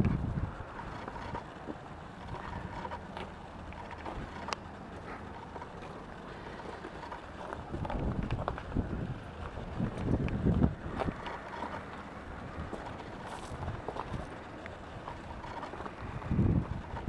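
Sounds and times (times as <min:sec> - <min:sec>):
wind noise on microphone: 0:00.0 - 0:01.4, 0:07.6 - 0:17.0.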